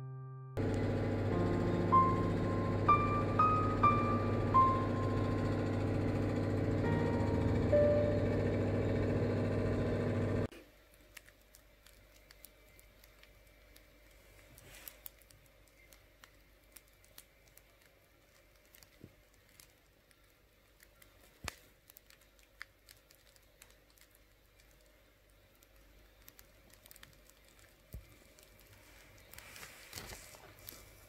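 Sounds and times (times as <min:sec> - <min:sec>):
bread crust crackling: 0:10.6 - 0:31.0.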